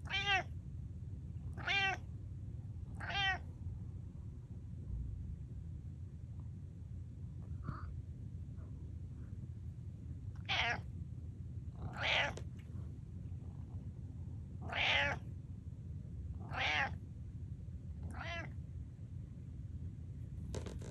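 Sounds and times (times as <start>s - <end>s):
cat meowing: 0.0s - 0.5s, 1.6s - 2.0s, 3.0s - 3.4s, 10.4s - 10.8s, 11.9s - 12.4s, 14.7s - 15.2s, 16.4s - 17.0s, 18.1s - 18.5s.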